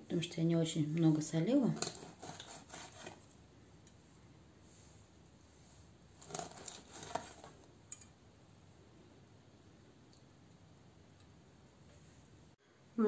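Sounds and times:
knife cutting fish: 1.8 - 3.3, 6.2 - 7.5.

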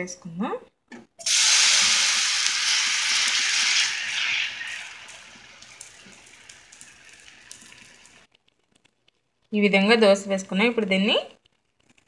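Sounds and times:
batter sizzling in a pan: 1.2 - 8.8
small crackling pops: 5.1 - 9.6, 11.2 - 12.0.

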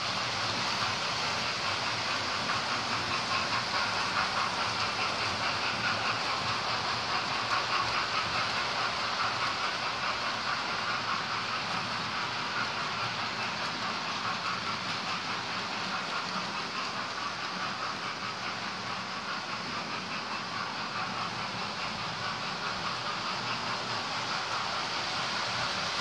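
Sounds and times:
model trains rattling whir: 0.0 - 26.0.

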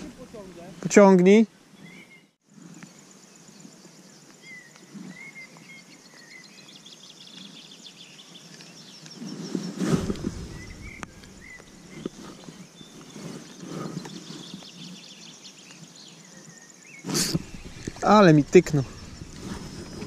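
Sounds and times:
small birds chirping: 0.0 - 20.0
low rumble on microphone: 9.8 - 12.6, 17.1 - 20.0.

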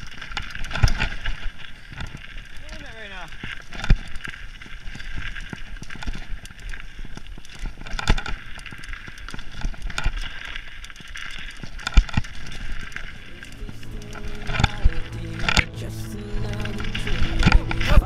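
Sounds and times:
bike rattling over bumps: 0.0 - 15.6.

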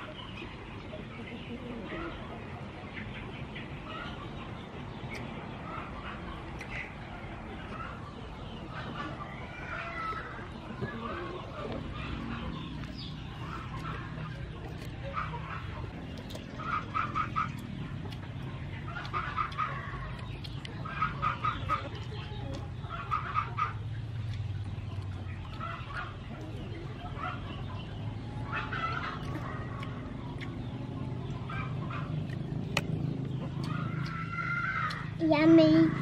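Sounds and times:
fowl clucking: 10.8 - 23.9.

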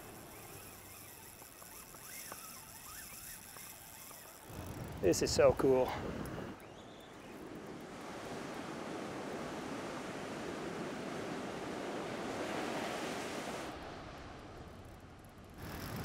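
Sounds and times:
ocean surf breaking: 7.5 - 14.4.

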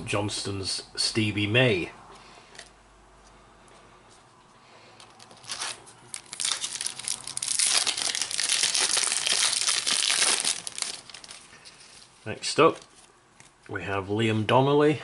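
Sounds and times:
plastic wrapper crinkling: 5.0 - 13.6.

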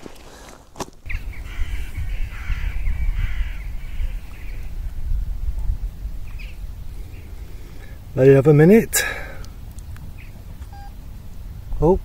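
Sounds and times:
steady low rumble: 1.0 - 12.0
crows cawing: 1.2 - 4.7.

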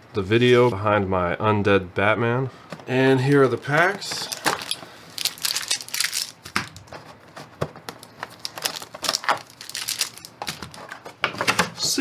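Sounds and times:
plastic insert rustling: 2.7 - 11.8
foil wrappers crinkling: 3.1 - 7.1, 7.9 - 11.1.

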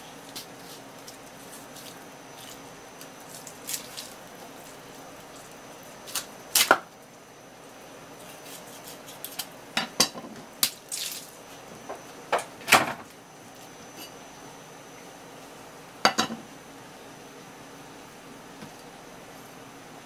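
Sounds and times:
knife scraping fish bones: 8.2 - 9.5.

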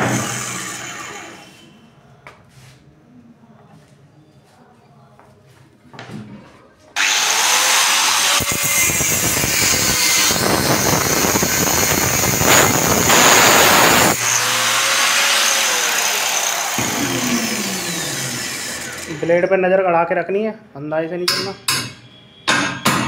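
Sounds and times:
angle grinder cutting metal: 0.0 - 1.6, 7.0 - 19.4
angle grinder whining: 0.0 - 1.6, 7.0 - 19.5.

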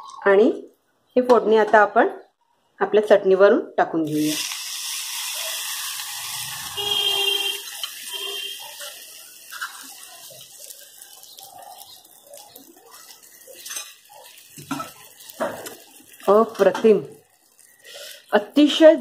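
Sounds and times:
hot oil sizzling: 4.0 - 19.0.

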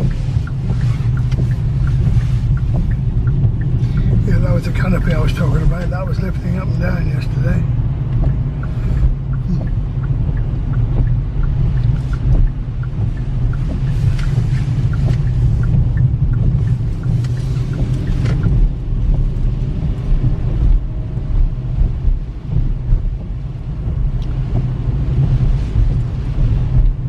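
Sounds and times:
tyres hissing on wet road: 0.0 - 7.8, 8.6 - 10.0, 11.6 - 18.6
car road noise rumble: 0.0 - 27.0.

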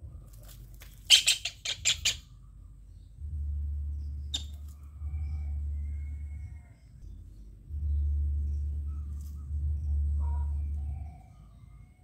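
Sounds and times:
low rumble: 0.0 - 1.1, 2.2 - 12.0
kingfisher rattling squawk: 1.1 - 2.3.

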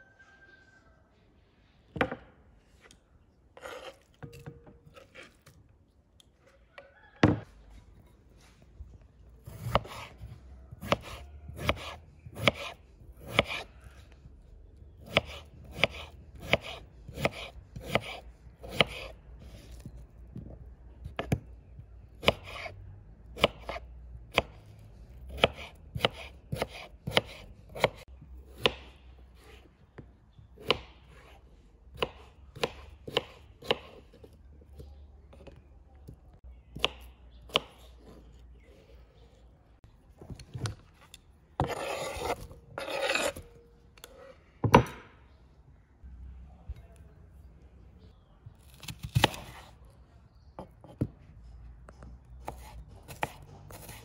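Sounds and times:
knife chopping on wooden board: 9.4 - 13.7, 15.0 - 19.8, 20.4 - 21.5, 23.4 - 24.6, 25.3 - 29.6, 30.6 - 35.6, 36.7 - 38.3, 41.6 - 43.4, 48.7 - 49.7, 52.4 - 54.0.

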